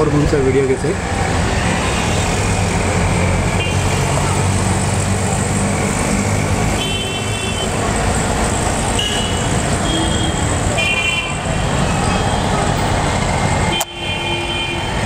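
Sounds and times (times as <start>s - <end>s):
traffic engines rumbling: 0.0s - 15.0s
vehicle horn tooting: 9.0s - 12.6s, 13.7s - 15.0s.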